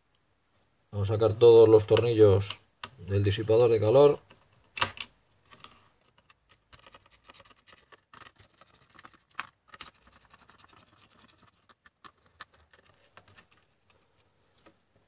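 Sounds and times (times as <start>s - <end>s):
screwdriver scratching and clicking: 6.2s - 13.6s.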